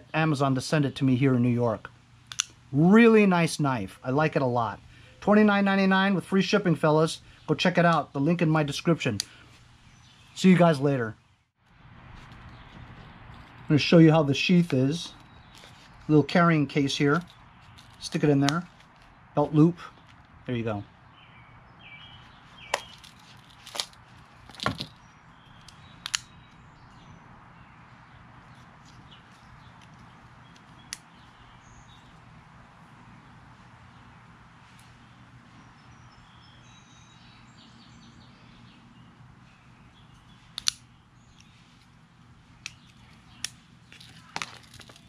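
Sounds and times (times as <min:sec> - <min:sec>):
pocket knife clicks and snaps: 0:40.6 - 0:41.5.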